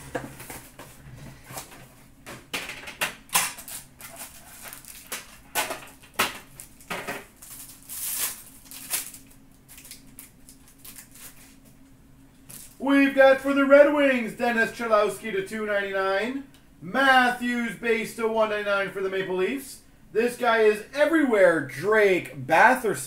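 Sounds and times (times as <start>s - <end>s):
faint steady hum: 0.0s - 23.0s
foil wrappers crinkling and tearing: 3.3s - 11.8s.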